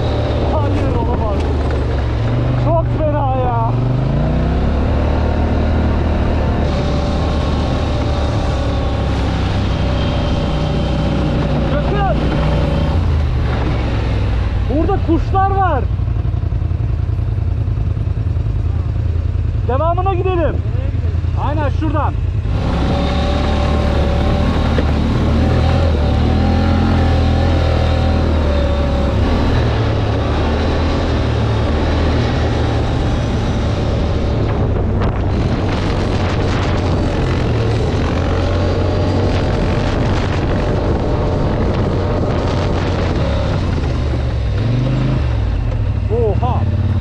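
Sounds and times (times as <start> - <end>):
quad bike engine running: 0.0 - 47.0
wind on microphone: 22.4 - 46.0.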